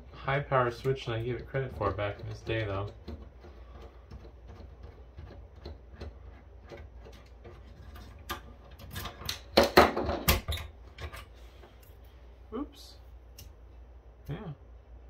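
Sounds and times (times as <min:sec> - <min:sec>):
fan clicking and clattering: 0:00.0 - 0:12.0
screwdriver ticking: 0:00.8 - 0:07.3.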